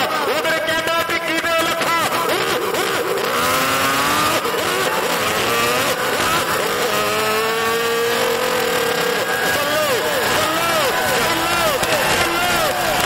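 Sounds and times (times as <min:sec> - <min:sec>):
crowd cheering and shouting: 0:00.0 - 0:13.0
long held shout: 0:08.3 - 0:13.0.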